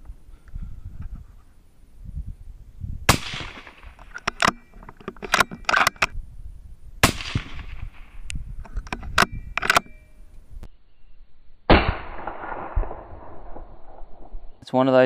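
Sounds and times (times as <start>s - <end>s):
rifle shots with echo: 3.1s - 4.0s, 7.0s - 8.2s, 11.7s - 14.4s
rifle bolt metallic clicks: 3.3s - 6.2s, 8.2s - 10.1s.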